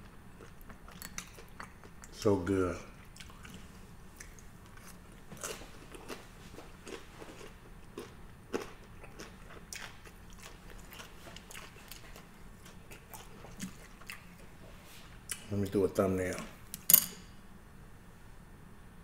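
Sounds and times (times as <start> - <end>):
person chewing food: 0.0 - 2.2, 3.0 - 15.5.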